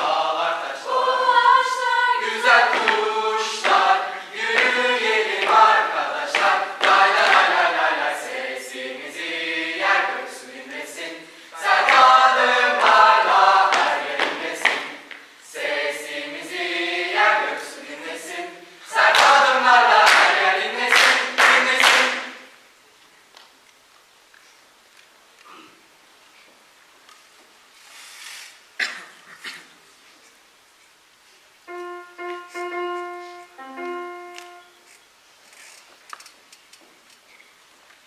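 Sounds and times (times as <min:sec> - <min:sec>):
mixed choir singing a cappella: 0:00.0 - 0:22.6.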